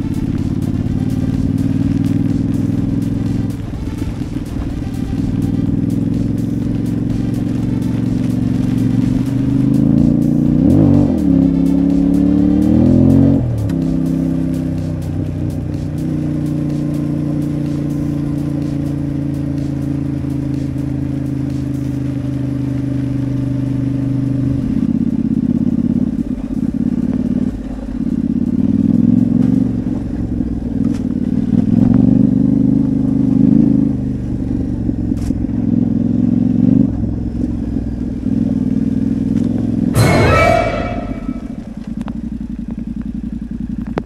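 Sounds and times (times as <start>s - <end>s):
motorcycle engine revving: 0.0s - 44.0s.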